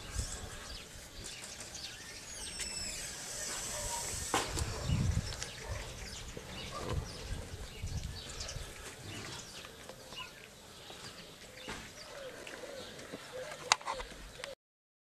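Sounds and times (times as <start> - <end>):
puppies snuffling and lapping: 0.3 - 14.2.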